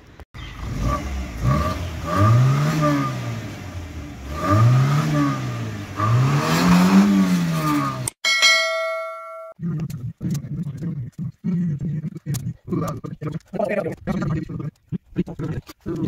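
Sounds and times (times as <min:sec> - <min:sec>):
car engine revving: 0:00.4 - 0:08.2.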